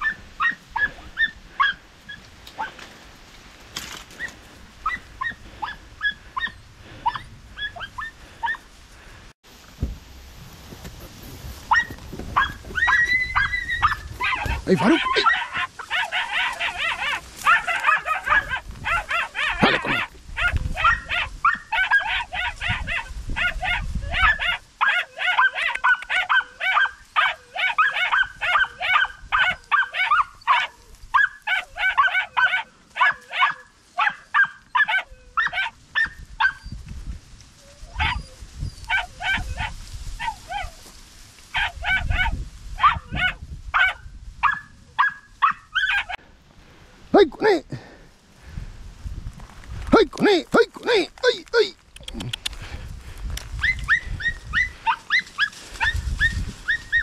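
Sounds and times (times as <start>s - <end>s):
hounds yelping barks: 0.0s - 2.8s, 4.1s - 8.7s, 11.7s - 36.7s, 37.8s - 40.9s, 41.5s - 46.2s, 53.6s - 57.0s.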